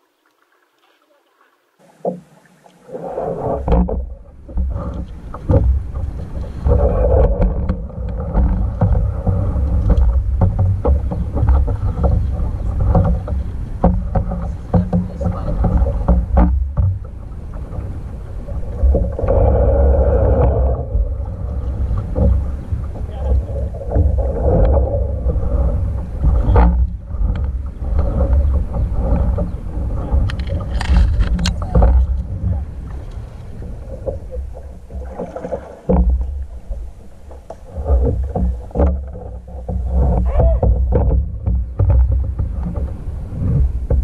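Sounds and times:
paddle splashing in water: 0.0 - 44.0
low rumble: 3.1 - 44.0
small knocks and clicks: 7.2 - 17.9, 26.0 - 32.3, 32.9 - 44.0.

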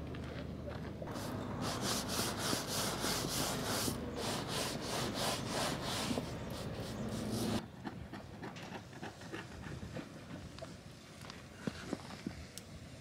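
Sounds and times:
stiff brush scrubbing rubber: 1.1 - 7.6.

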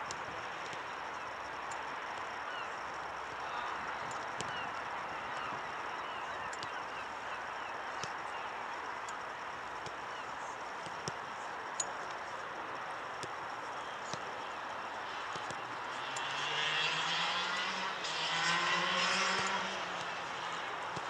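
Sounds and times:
outdoor background noise: 0.0 - 21.0.

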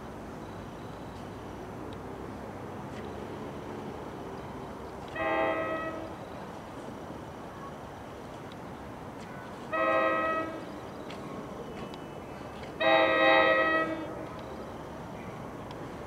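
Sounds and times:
train horn blasts: 5.1 - 6.2, 9.7 - 10.6, 12.8 - 14.2.

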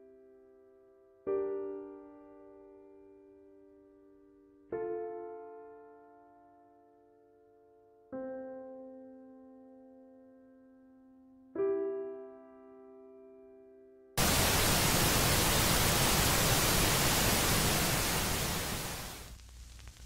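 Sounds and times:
soft piano chords: 0.0 - 16.3
static hiss: 14.2 - 20.0.

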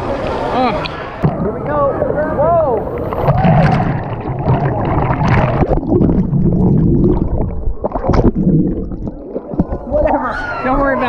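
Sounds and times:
wave crashing and splashing: 0.0 - 6.5
underwater rumbling and gurgling: 0.0 - 11.0.

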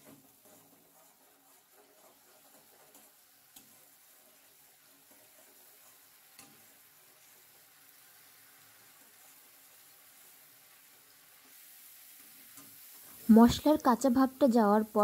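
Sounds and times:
spatula scraping and tapping pan: 0.0 - 9.8, 11.3 - 13.2
spice paste sizzling in a pan: 0.0 - 15.0.

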